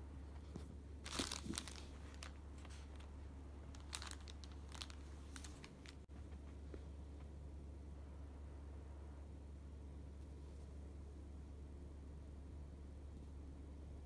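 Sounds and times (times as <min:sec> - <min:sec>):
plastic packaging crinkling: 0:01.0 - 0:03.1, 0:03.7 - 0:06.1.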